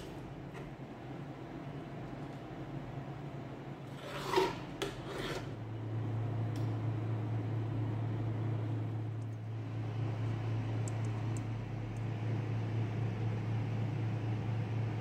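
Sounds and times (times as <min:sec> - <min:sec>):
low steady hum: 0:00.0 - 0:15.0
knife scraping pan rim: 0:03.9 - 0:05.5.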